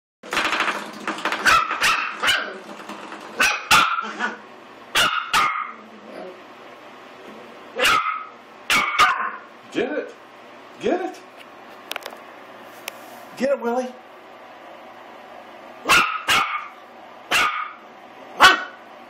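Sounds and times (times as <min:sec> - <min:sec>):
puppy growling: 0:01.3 - 0:04.5, 0:05.4 - 0:06.5
puppy barking: 0:01.4 - 0:02.6, 0:03.4 - 0:05.8, 0:07.8 - 0:09.5, 0:15.8 - 0:17.8, 0:18.4 - 0:18.8.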